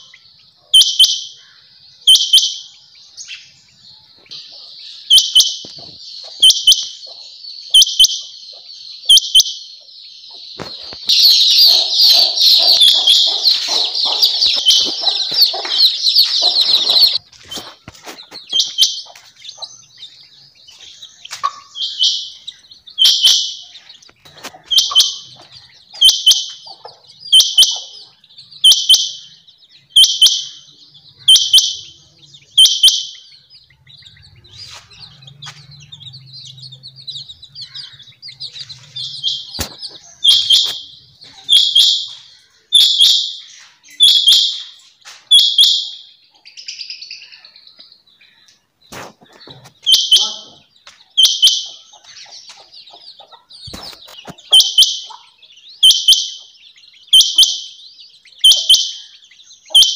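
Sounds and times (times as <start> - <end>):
quail calling: 4.2 - 46.1, 48.2 - 59.9.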